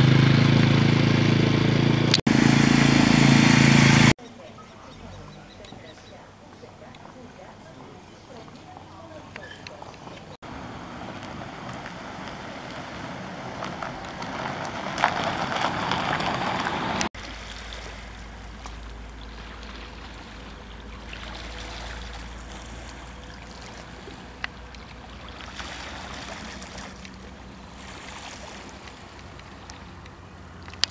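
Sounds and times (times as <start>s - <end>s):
vehicle on road: 0.0s - 4.2s, 4.8s - 30.9s
small waves on pebble shore: 10.5s - 30.0s.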